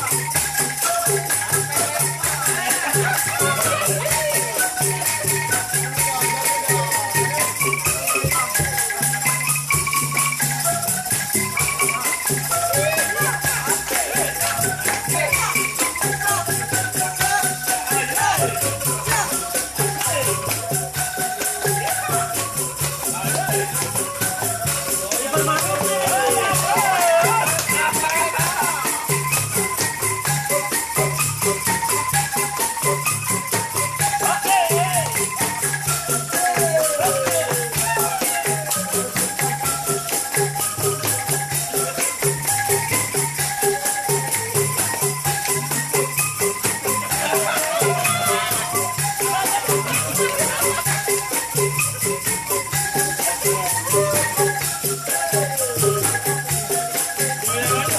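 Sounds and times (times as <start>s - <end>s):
upbeat dance music: 25.2s - 29.4s, 47.0s - 50.9s.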